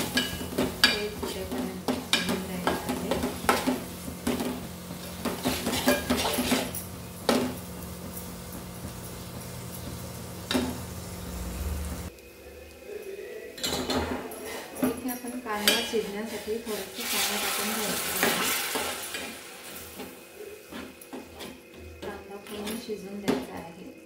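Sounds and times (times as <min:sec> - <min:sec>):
spatula scraping metal pot: 0:00.0 - 0:06.8, 0:15.5 - 0:19.4
food frying in oil: 0:00.0 - 0:12.3, 0:15.4 - 0:23.2.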